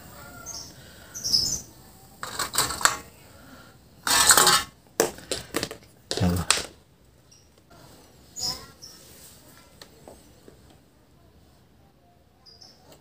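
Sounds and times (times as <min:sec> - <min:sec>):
metal clatter and scraping on tiles: 0:02.2 - 0:03.3, 0:04.0 - 0:06.8.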